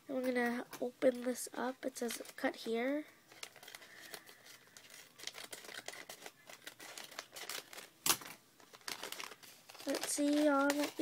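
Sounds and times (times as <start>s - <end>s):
bag crinkling and rustling: 3.3s - 11.0s.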